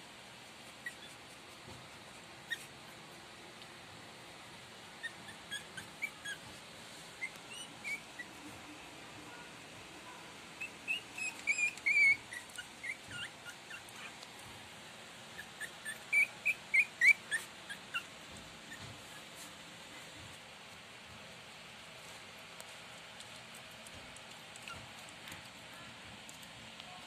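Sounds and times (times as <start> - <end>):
puppies squeaking and whimpering: 5.0 - 6.5, 7.2 - 8.4, 10.6 - 14.2, 15.4 - 19.3.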